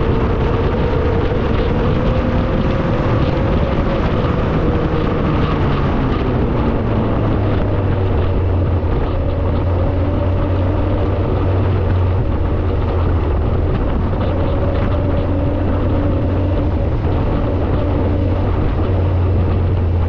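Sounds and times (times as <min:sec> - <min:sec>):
road and wind noise: 0:00.0 - 0:20.0
vehicle engine droning: 0:00.0 - 0:20.0.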